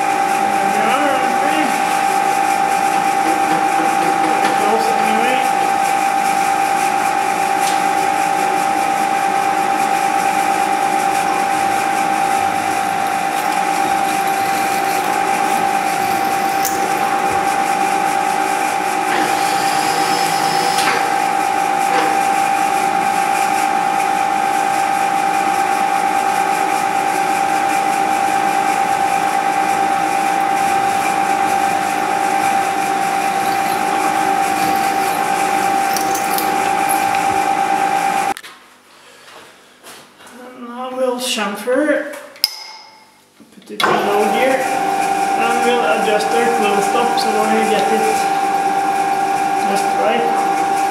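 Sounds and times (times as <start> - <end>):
drill boring metal: 0.0 - 38.4, 43.8 - 50.9
milling machine spindle whine: 0.0 - 38.4, 43.8 - 50.9.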